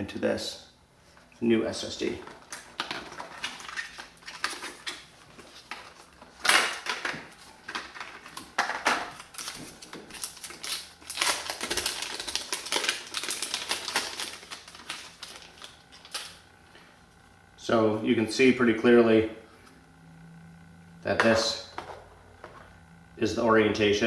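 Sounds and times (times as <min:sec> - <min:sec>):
plastic packaging crinkling: 0:02.1 - 0:16.4.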